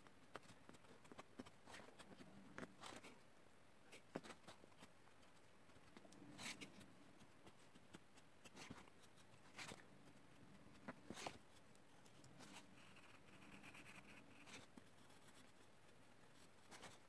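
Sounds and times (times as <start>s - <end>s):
pencil scratching on paper: 3.9s - 17.0s.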